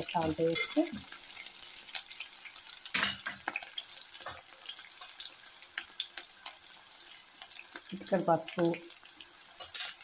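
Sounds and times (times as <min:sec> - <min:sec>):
food sizzling in hot oil: 0:00.0 - 0:10.0
small crackles: 0:03.4 - 0:08.1.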